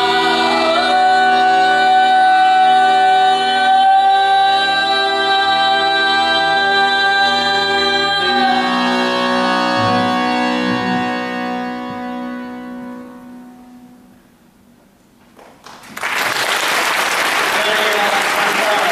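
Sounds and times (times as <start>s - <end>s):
woman singing: 0.0s - 11.4s
accordion: 0.0s - 14.3s
double bass: 5.3s - 13.5s
applause: 15.4s - 18.9s.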